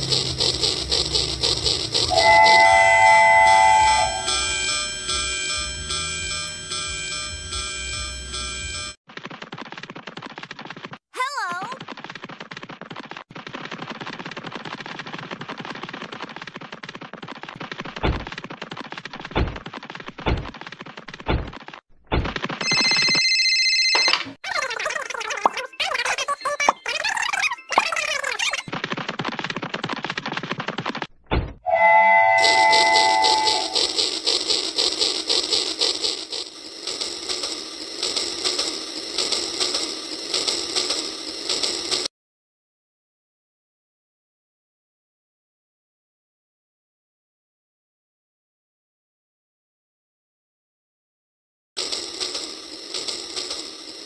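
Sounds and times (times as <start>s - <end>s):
telephone ringing sound effect: 2.1s - 9.0s, 22.6s - 24.4s, 31.7s - 34.0s
toy train clattering on track: 32.4s - 42.1s, 51.8s - 54.0s.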